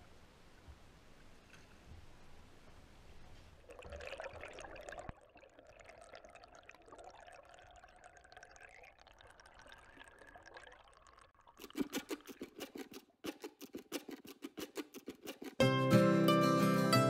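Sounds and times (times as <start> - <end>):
plucked guitar music: 12.7 - 17.0.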